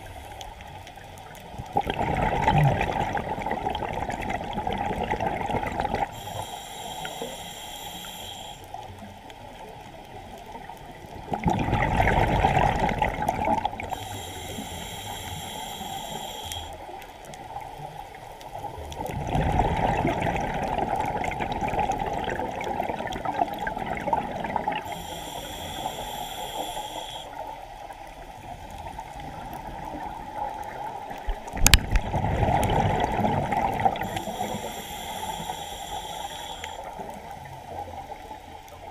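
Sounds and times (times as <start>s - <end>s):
regulator hissing inhale: 0.0s - 0.8s, 6.0s - 9.0s, 13.7s - 17.0s, 24.8s - 27.9s, 33.9s - 37.3s
exhaled bubbles rushing: 1.6s - 6.1s, 11.2s - 13.9s, 19.0s - 24.9s, 29.3s - 34.1s.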